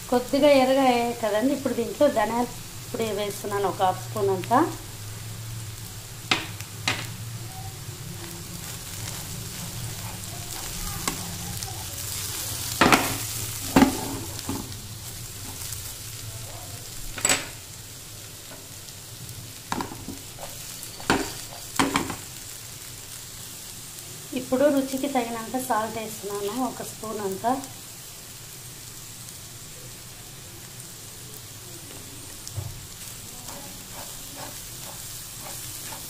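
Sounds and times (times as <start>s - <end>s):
food sizzling in hot oil: 0.0s - 36.0s
steel spatula scraping a pan: 20.2s - 21.8s, 33.0s - 36.0s.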